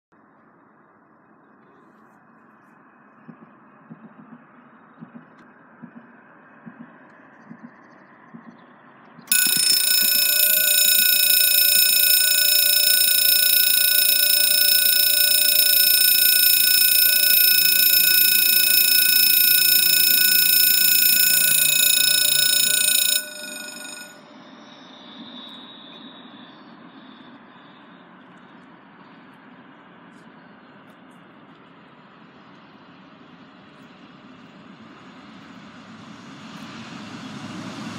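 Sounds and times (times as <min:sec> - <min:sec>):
level crossing warning tone: 0:09.3 - 0:24.3.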